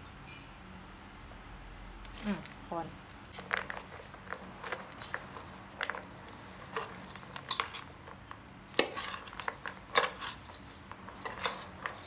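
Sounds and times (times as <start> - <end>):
utensil scraping a metal pot: 3.6 - 8.0, 8.7 - 12.0.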